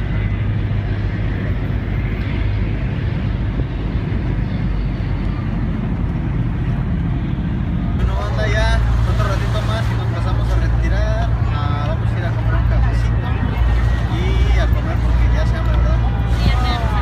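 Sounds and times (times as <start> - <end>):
low rumble of city noise: 0.0 - 17.0.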